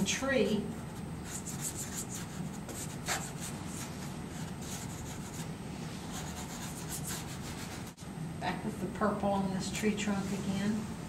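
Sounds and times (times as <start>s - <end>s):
pastel stick scratching on paper: 1.2s - 5.5s, 6.1s - 8.0s.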